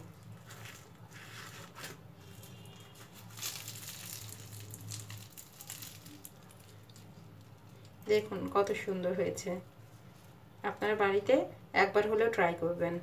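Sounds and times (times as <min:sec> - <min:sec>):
pastry crust crackling: 0:00.0 - 0:09.3.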